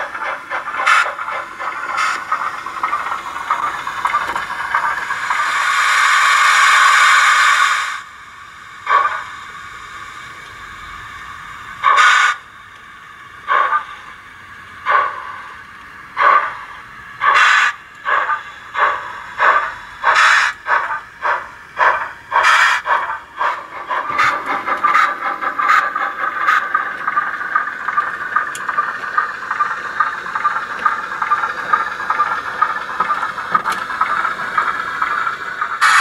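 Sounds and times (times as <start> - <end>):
steady steam hiss: 0.0 - 36.0
steam engine exhaust chuffs: 0.0 - 36.0.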